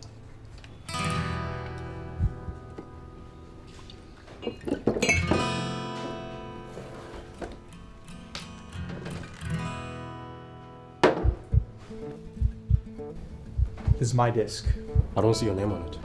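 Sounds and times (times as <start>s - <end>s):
acoustic guitar strums: 0.9s - 4.1s, 5.0s - 15.8s
short low thump: 11.1s - 11.8s.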